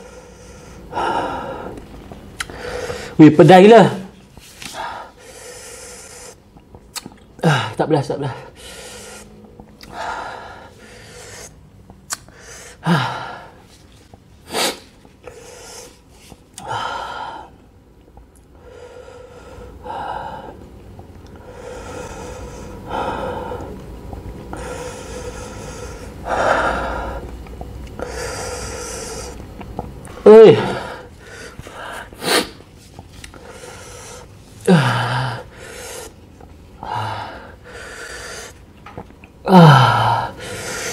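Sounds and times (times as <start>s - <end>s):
man gasping breaths: 12.3s - 13.6s.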